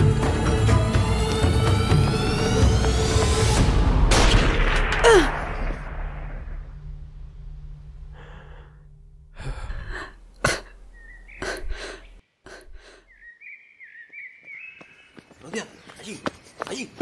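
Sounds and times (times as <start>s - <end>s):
person gasping and breathing: 8.1s - 13.1s
bird chirping: 10.8s - 17.0s.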